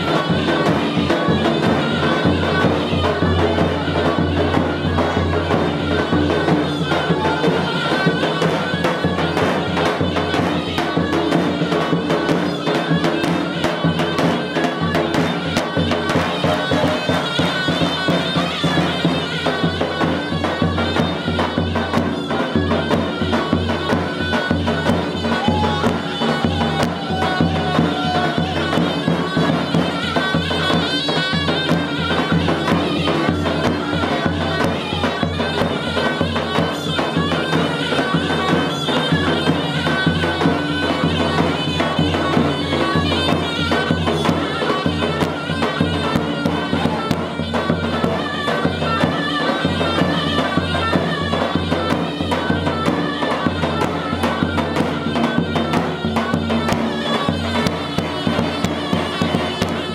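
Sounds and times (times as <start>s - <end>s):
wind instrument folk melody: 0.0s - 59.9s.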